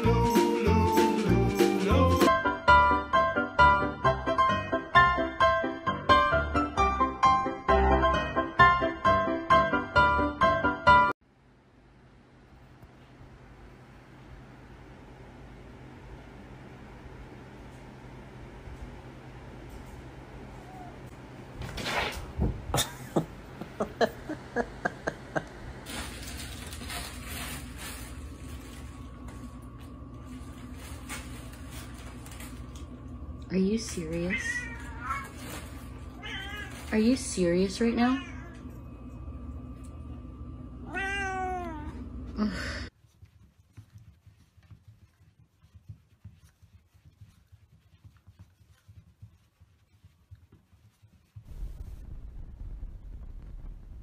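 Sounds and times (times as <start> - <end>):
cat meowing: 20.5 - 21.1, 34.3 - 35.4, 36.1 - 36.9, 40.8 - 42.0.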